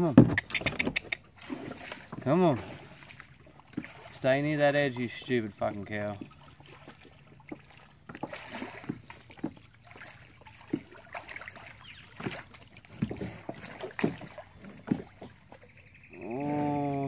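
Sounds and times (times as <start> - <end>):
kayak paddle splashing in water: 0.2 - 17.0
paddle knocks: 6.0 - 15.7.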